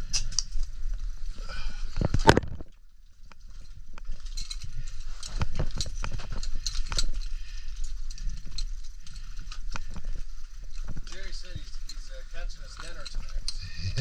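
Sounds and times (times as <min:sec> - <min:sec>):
low steady rumble: 0:13.5 - 0:14.0.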